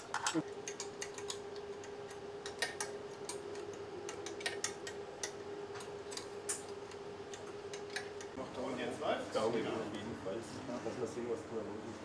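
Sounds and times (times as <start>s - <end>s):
connectors clicking and tapping: 0.0s - 8.4s
steady background hum: 0.0s - 12.0s.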